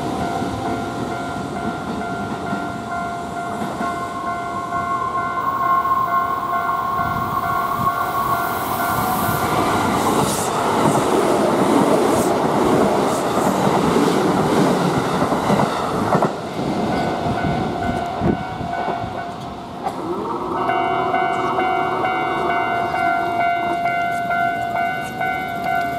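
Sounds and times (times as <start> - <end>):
level-crossing warning bell: 0.0 - 11.6, 16.8 - 25.9.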